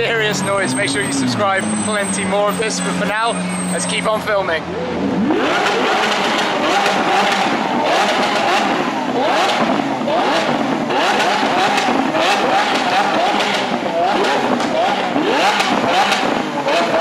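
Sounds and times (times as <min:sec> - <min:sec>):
car engine revving: 0:00.0 - 0:17.0
exhaust cracks: 0:00.0 - 0:17.0.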